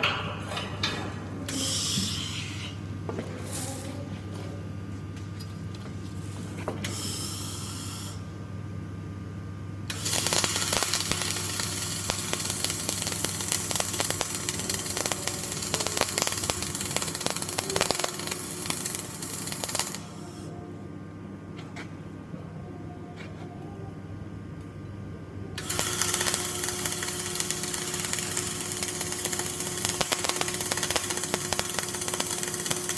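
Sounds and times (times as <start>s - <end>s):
low machinery hum: 0.0s - 32.9s
welding arc crackling: 9.9s - 20.3s, 25.6s - 32.9s.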